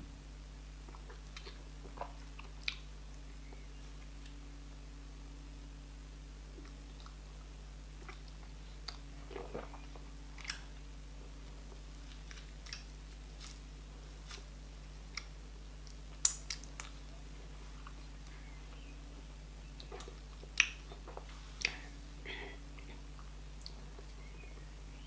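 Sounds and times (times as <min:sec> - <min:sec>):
person chewing food: 0:00.8 - 0:04.1, 0:08.0 - 0:10.7, 0:19.8 - 0:24.6
wet mouth smacks and clicks: 0:16.2 - 0:16.9.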